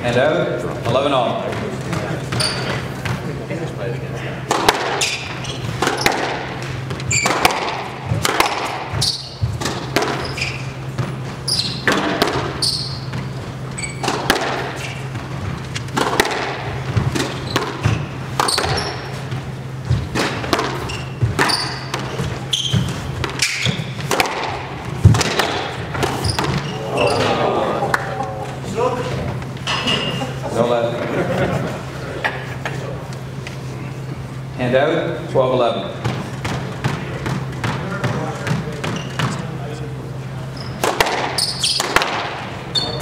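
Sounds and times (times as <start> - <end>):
squash ball hitting rackets and walls: 0.8 - 3.4, 4.4 - 28.2, 35.9 - 39.7, 40.7 - 43.0
sneakers squeaking on wooden floor: 1.4 - 3.4, 4.8 - 27.5, 28.3 - 30.4, 36.0 - 39.7, 40.4 - 43.0.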